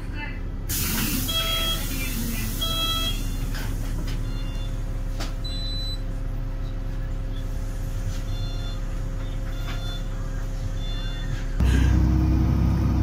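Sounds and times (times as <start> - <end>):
bus engine and road rumble: 0.0 - 13.0
short electronic beep: 2.6 - 3.4.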